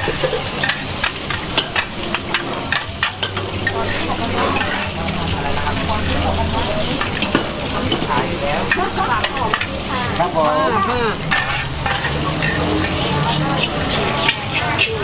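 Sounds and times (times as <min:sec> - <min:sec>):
food sizzling in hot oil: 0:00.0 - 0:15.0
metal spatula scraping a pan: 0:00.0 - 0:15.0.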